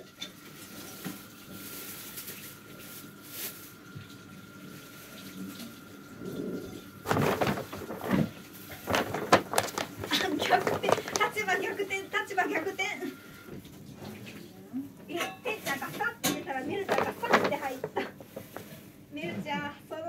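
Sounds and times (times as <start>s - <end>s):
paper bag crinkling and rustling: 0.6s - 3.8s, 7.0s - 12.8s, 15.5s - 19.0s.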